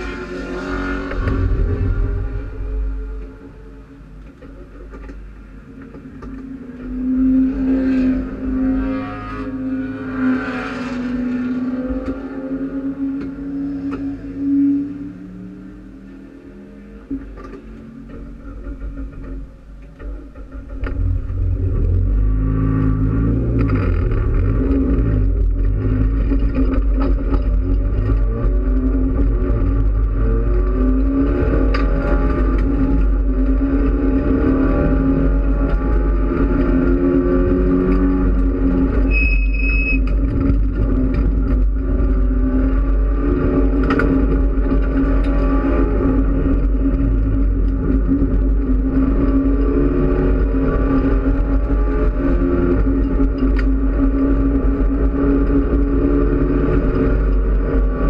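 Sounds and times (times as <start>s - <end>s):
race car engine revving: 0.0s - 5.1s, 6.2s - 39.1s.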